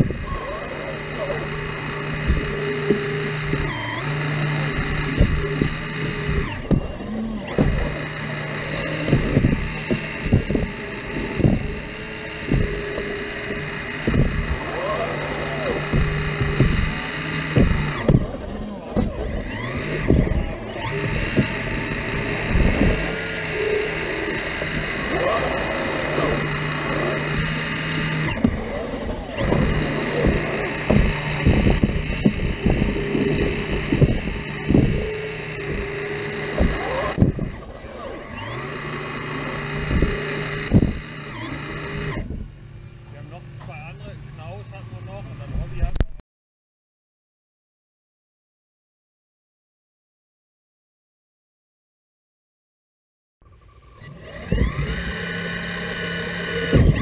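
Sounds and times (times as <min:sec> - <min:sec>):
machine knocks and clanks: 0:00.0 - 0:37.6, 0:54.4 - 0:57.0
excavator engine drone: 0:00.0 - 0:46.2, 0:53.4 - 0:57.0.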